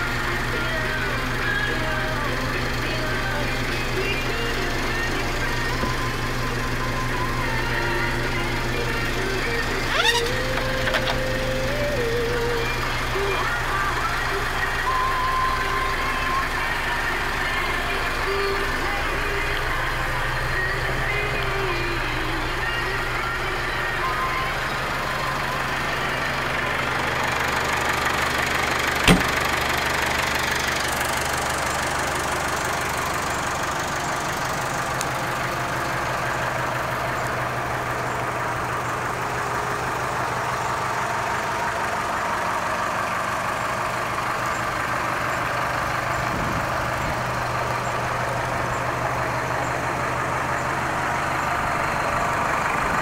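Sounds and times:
tractor diesel engine idling: 0.0 - 53.0.

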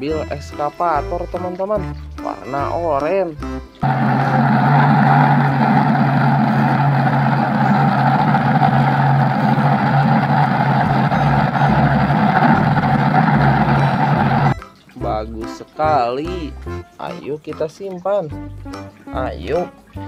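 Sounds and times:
engine humming and rumbling: 3.8 - 14.6.

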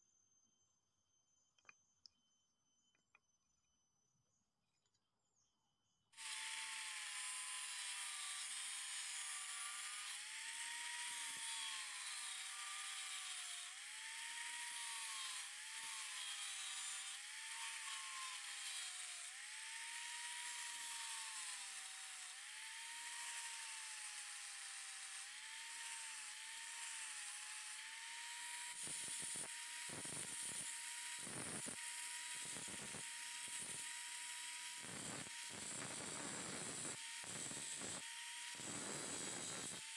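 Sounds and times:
angle grinder whining: 6.2 - 39.9.

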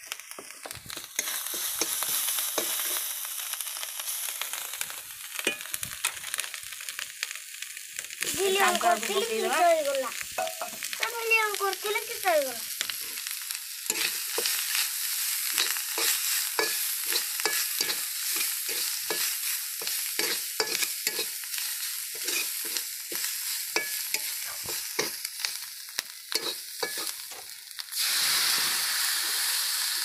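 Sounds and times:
food sizzling in a pan: 0.0 - 30.0
spatula scraping a pan: 13.9 - 25.3, 26.3 - 27.4.

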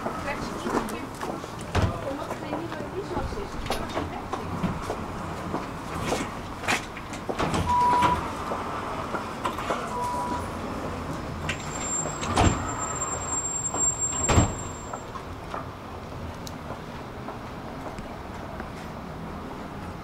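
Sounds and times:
tram rumble: 0.0 - 20.0
short high beeps: 7.7 - 8.2, 9.9 - 10.5.

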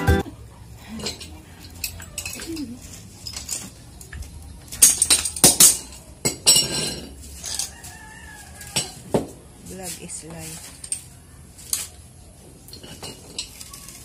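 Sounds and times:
metallic clicks and clinks: 1.0 - 7.8.

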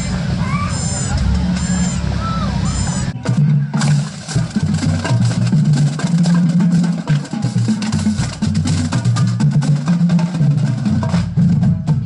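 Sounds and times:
crisp percussion hits: 0.0 - 12.0
music with stepping bass line: 2.6 - 12.0.

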